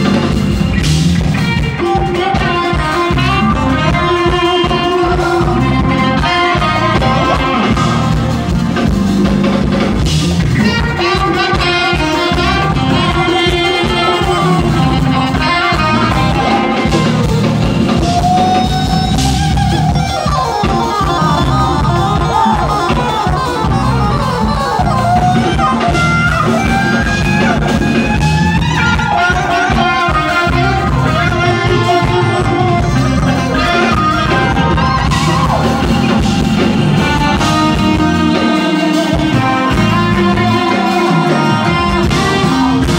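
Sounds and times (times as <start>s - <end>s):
drums: 0.0s - 42.9s
electric bass: 0.0s - 42.9s
guitar: 0.0s - 42.9s
keyboards: 0.0s - 42.9s.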